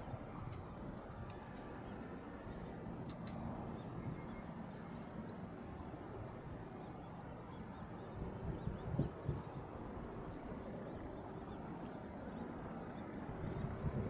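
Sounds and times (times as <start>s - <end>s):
faint clicks: 0.0s - 4.5s
distant bird chirps: 0.0s - 14.0s
wind rumble: 0.0s - 14.0s.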